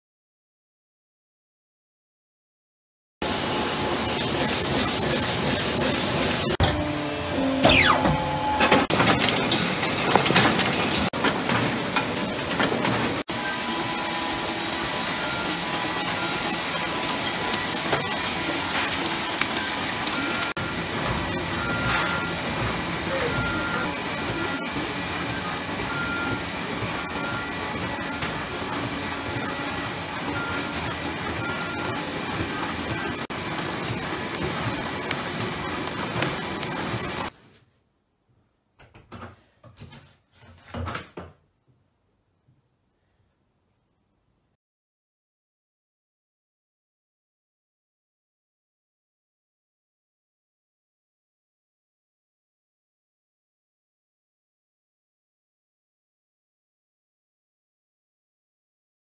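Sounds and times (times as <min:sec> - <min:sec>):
wrapping machine hissing: 0:03.2 - 0:06.6, 0:08.8 - 0:37.3.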